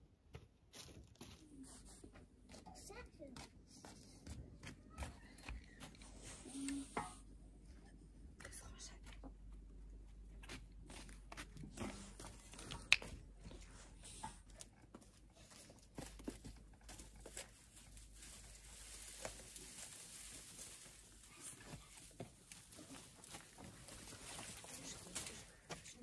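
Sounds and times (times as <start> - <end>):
brushwood rustling and crackling: 14.4 - 26.0.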